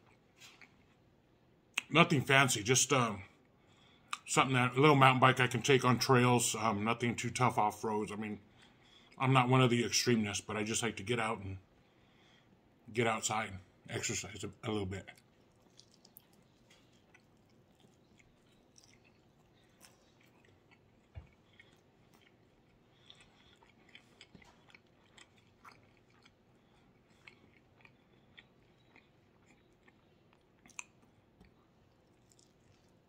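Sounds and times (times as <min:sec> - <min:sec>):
man chewing food: 0:00.0 - 0:01.3, 0:15.0 - 0:33.0
wet mouth clicks and smacks: 0:15.5 - 0:20.3.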